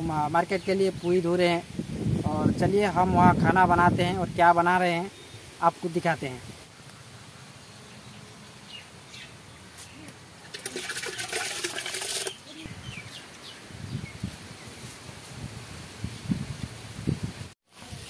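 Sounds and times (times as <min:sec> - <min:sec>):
rice pouring into metal pot: 0:10.6 - 0:12.4.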